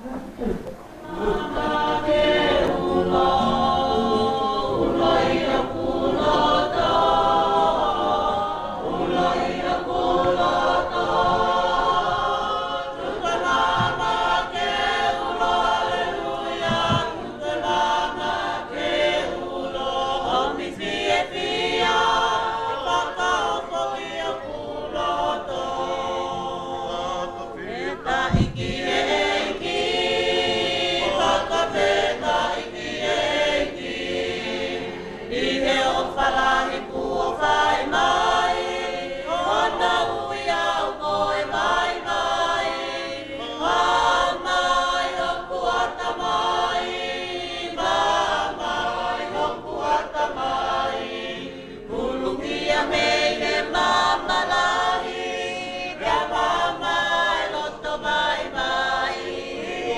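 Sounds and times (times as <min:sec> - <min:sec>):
congregation singing a hymn: 0:00.0 - 0:59.9
low bump: 0:28.2 - 0:29.2.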